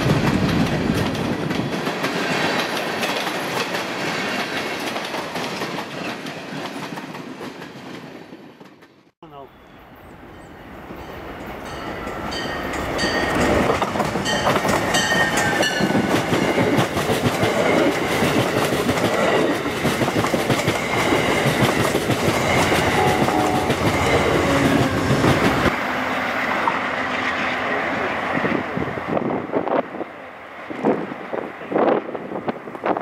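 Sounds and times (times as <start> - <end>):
clickety-clack over rail joints: 0.0 - 9.1, 12.7 - 23.0
train rushing past: 10.2 - 33.0
high-pitched tones: 22.7 - 25.7.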